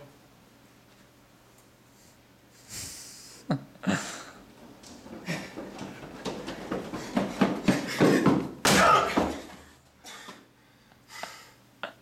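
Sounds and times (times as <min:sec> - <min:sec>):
running footsteps: 0:03.9 - 0:10.4
faint thuds: 0:04.4 - 0:09.6
loud slam kicking wooden table: 0:08.6 - 0:09.5.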